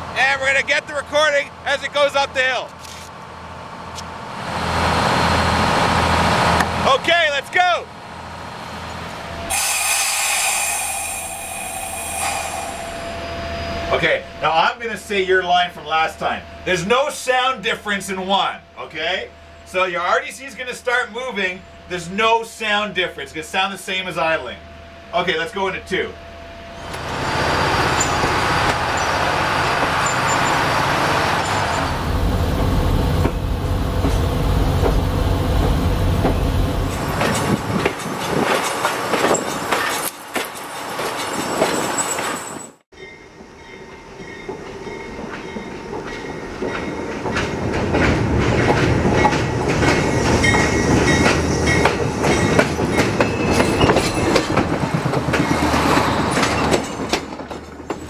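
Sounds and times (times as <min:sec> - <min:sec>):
wheels clacking over rail joints: 0:26.8 - 0:42.8, 0:44.2 - 0:58.0
diesel engine running: 0:26.9 - 0:37.9.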